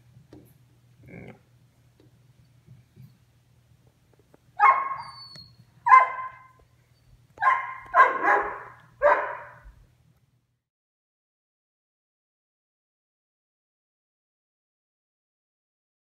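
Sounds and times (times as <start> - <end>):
dog barking: 4.6 - 5.2, 5.8 - 6.6, 7.4 - 9.7.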